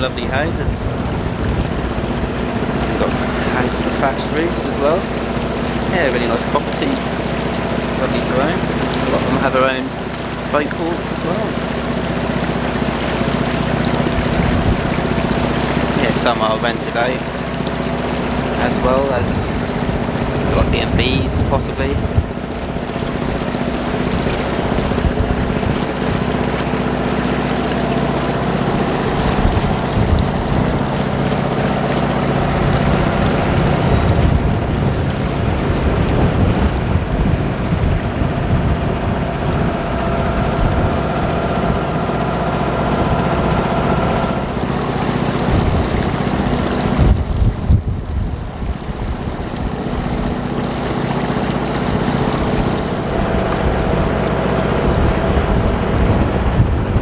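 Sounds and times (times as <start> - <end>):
wind buffeting microphone: 0.0 - 11.9, 13.5 - 17.2, 18.0 - 57.0
boat engine running: 0.0 - 57.0
water washing past hull: 0.0 - 57.0.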